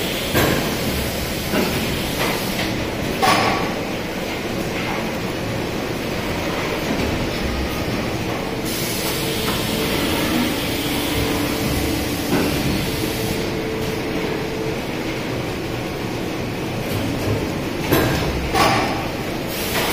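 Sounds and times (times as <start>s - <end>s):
hiss: 0.0s - 2.8s, 8.6s - 13.7s, 19.4s - 19.9s
packaging machine rumbling: 3.8s - 19.2s.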